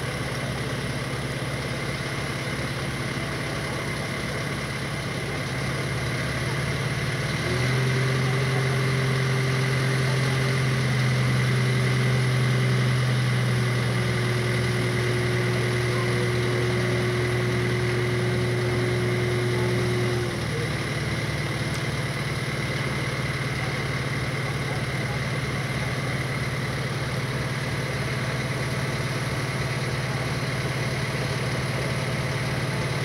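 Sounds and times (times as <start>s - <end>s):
crane diesel engine running: 0.0s - 33.0s.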